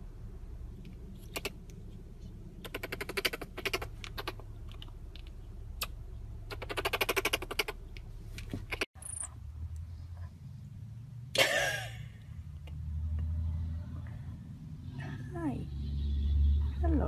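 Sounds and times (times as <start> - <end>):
low steady hum: 0.0 - 6.7.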